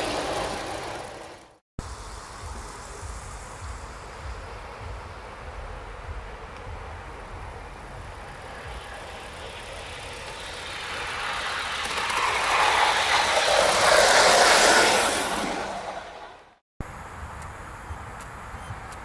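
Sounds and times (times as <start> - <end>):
model steam locomotive exhaust: 0.0 - 16.5
wheel noise on track: 0.0 - 19.0.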